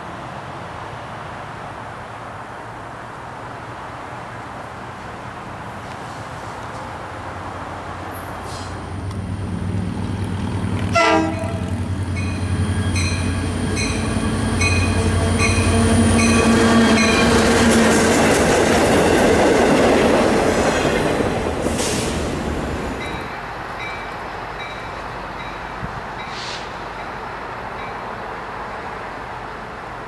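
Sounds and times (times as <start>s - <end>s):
diesel locomotive drone: 0.0s - 30.0s
train wheel noise: 5.6s - 30.0s
train horn toot: 10.9s - 11.7s, 14.6s - 17.4s.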